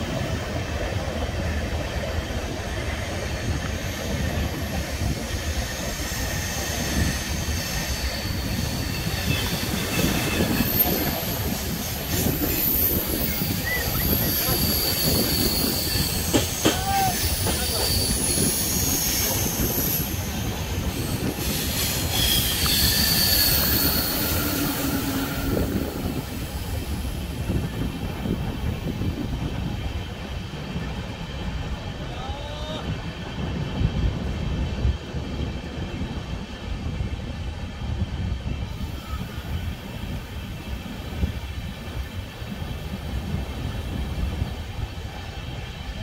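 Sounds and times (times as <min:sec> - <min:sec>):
train wheels rumbling on rails: 0:00.0 - 0:46.0
high-pitched wheel squeal: 0:05.4 - 0:11.4, 0:12.2 - 0:26.1.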